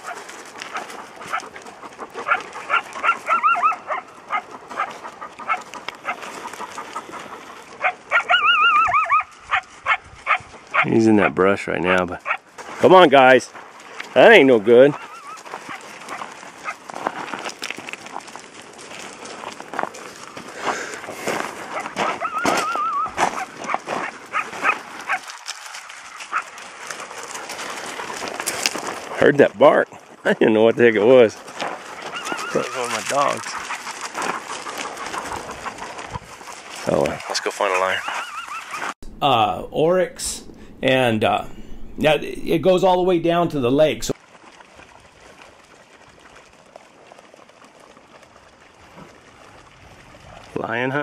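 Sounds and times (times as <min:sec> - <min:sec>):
coyote barking and yipping: 0:00.0 - 0:12.5, 0:14.9 - 0:16.8, 0:21.7 - 0:25.4, 0:26.2 - 0:27.0, 0:32.0 - 0:39.0
dog whining call: 0:02.3 - 0:04.9, 0:07.8 - 0:09.6, 0:15.0 - 0:15.4, 0:22.0 - 0:23.5, 0:32.1 - 0:32.8, 0:38.0 - 0:38.9
coyote howls: 0:02.7 - 0:04.9, 0:07.8 - 0:11.3, 0:14.9 - 0:15.4, 0:22.1 - 0:23.5, 0:32.0 - 0:33.4.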